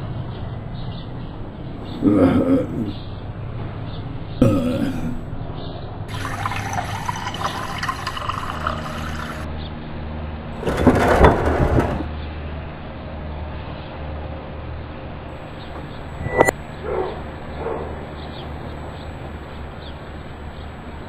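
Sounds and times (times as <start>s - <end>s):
water hissing and running: 6.1s - 9.5s
low hum: 15.4s - 21.0s.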